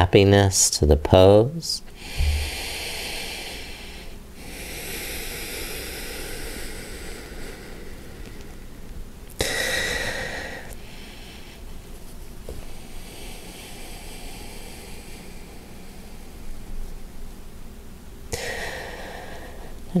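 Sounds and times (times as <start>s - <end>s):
man breathing slowly: 1.9s - 8.8s, 9.4s - 11.8s, 12.5s - 16.7s, 18.3s - 19.8s.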